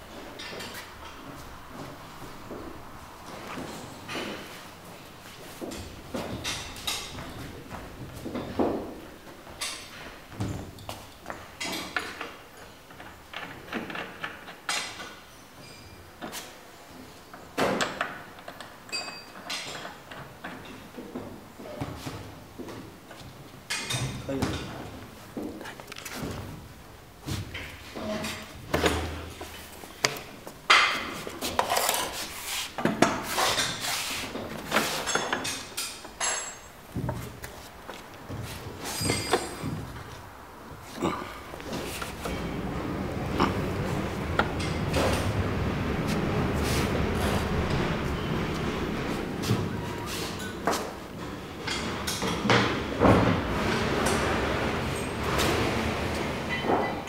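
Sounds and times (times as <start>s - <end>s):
short sliding scrapes: 31.2s - 35.2s, 41.6s - 50.4s
metal frame knocks and clinks: 34.4s - 37.4s, 38.3s - 40.3s, 50.3s - 57.0s.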